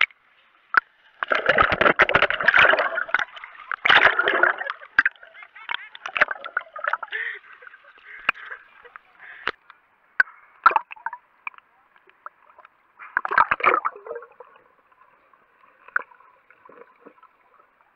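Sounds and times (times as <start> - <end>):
sea water sloshing and splashing: 0.0 - 9.5, 13.0 - 17.9.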